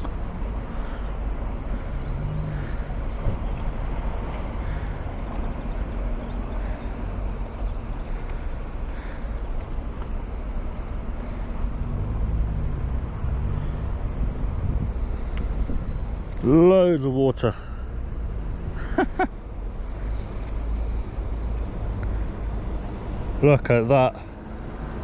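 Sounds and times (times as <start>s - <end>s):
wind buffeting microphone: 11.8s - 16.4s.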